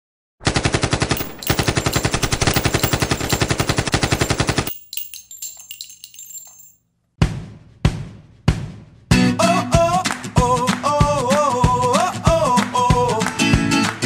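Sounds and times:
machine-gun fire: 0:00.4 - 0:04.7
high ringing: 0:01.2 - 0:06.8
metallic clinks: 0:01.2 - 0:06.8.

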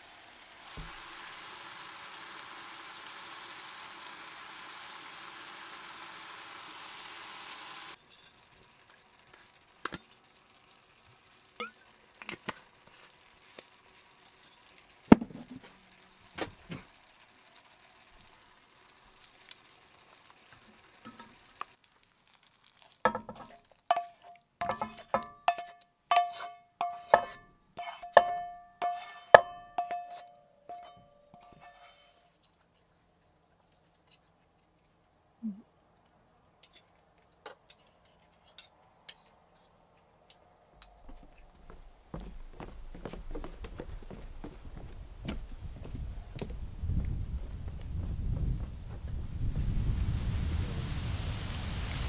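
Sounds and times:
food sizzling in a pan: 0:00.0 - 0:32.2, 0:49.9 - 0:52.0.

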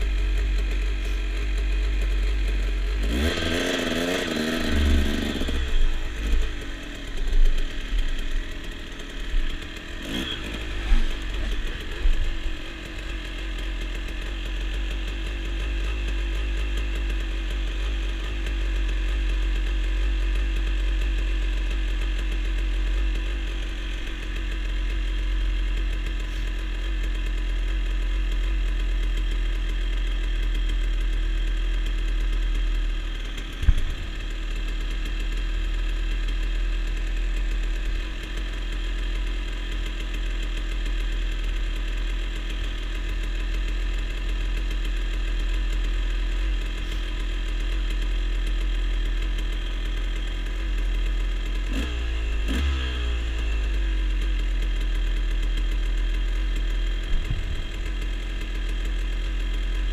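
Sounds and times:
dirt bike engine idling: 0:00.0 - 0:59.9.

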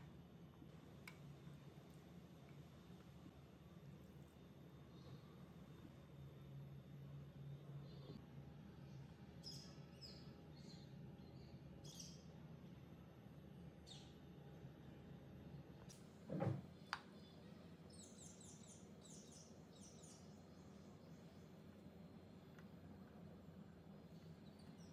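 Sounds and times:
low steady hum: 0:00.0 - 0:24.9
small birds chirping: 0:07.5 - 0:08.2, 0:08.8 - 0:12.4, 0:13.8 - 0:14.2, 0:16.7 - 0:23.1, 0:24.0 - 0:24.9.

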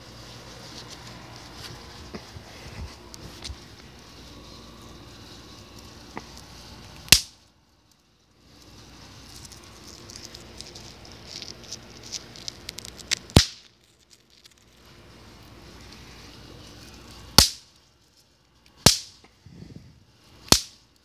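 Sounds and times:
bang snaps cracking on concrete: 0:13.3 - 0:13.7, 0:17.4 - 0:17.6, 0:18.8 - 0:19.2, 0:20.5 - 0:20.8.

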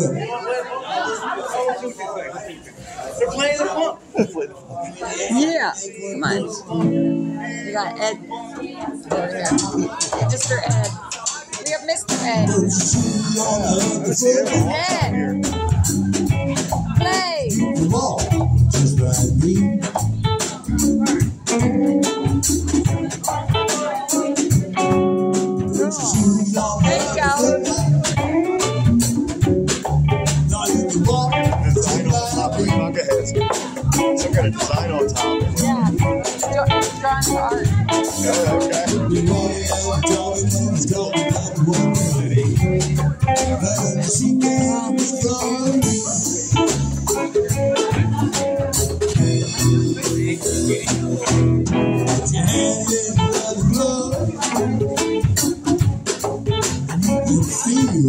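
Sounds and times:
live band playing: 0:02.9 - 0:04.2, 0:05.3 - 0:58.0
bass guitar: 0:06.2 - 0:11.1, 0:11.9 - 0:58.0
electric guitar: 0:06.6 - 0:11.0, 0:11.9 - 0:58.0
conga struck by hand: 0:08.8 - 0:58.0
drum kit: 0:08.8 - 0:58.0.

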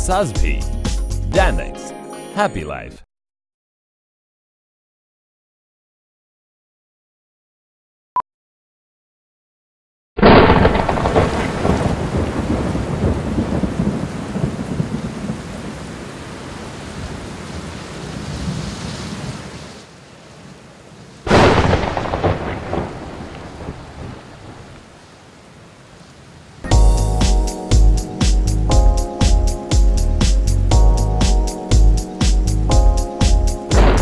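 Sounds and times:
thunder claps rumbling: 0:10.2 - 0:16.1, 0:21.3 - 0:24.8, 0:33.7 - 0:34.0
heavy rain hiss: 0:11.6 - 0:28.7.

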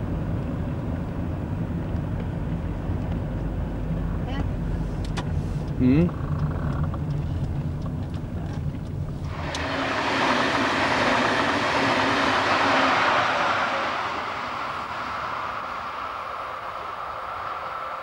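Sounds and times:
electric train passing: 0:09.2 - 0:18.0.

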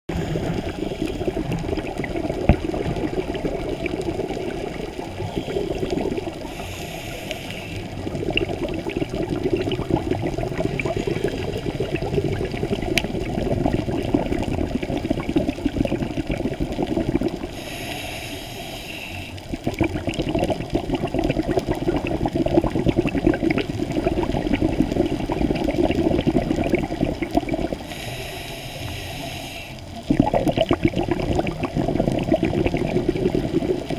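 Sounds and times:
exhaled bubbles gurgling: 0:00.1 - 0:33.9
regulator inhalation hiss: 0:06.4 - 0:07.9, 0:17.5 - 0:19.4, 0:27.8 - 0:29.9.

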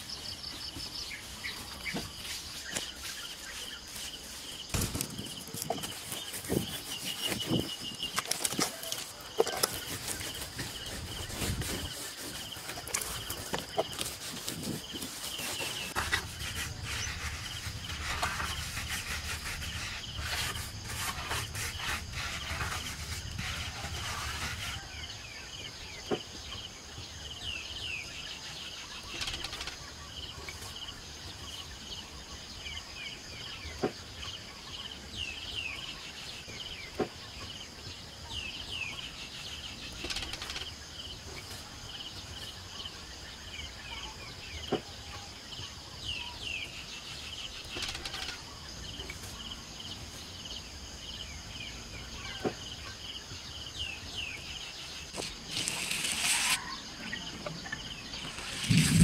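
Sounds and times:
birds chirping: 0:00.0 - 0:59.0
high-pitched insect whine: 0:54.6 - 0:59.0.

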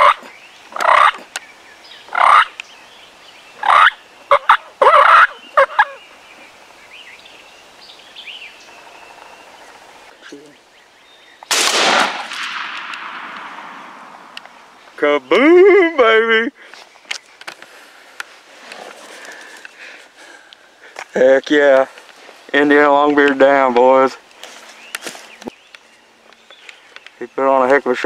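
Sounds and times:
turkeys gobbling: 0:00.0 - 0:01.3, 0:02.1 - 0:02.6, 0:03.6 - 0:06.0
shotgun blast with echo: 0:11.5 - 0:14.4.

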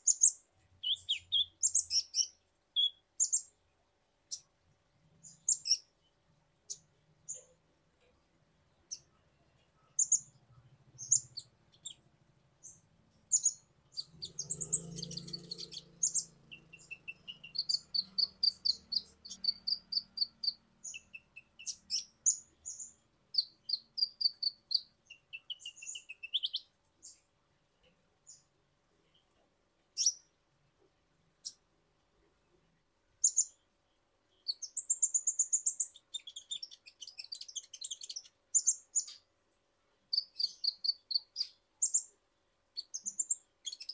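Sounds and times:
bird chirps and trills: 0:00.0 - 0:03.6, 0:08.8 - 0:27.3, 0:34.3 - 0:39.3, 0:40.1 - 0:42.2, 0:42.8 - 0:43.9.

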